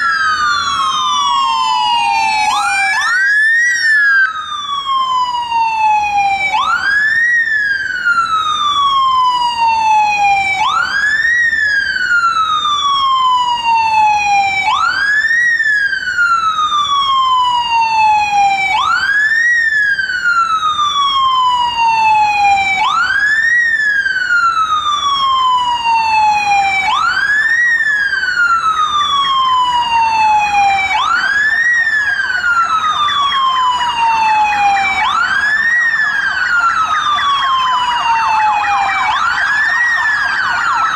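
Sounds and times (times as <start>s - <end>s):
fast warbling siren: 0.0s - 40.9s
police siren wailing: 0.0s - 40.9s.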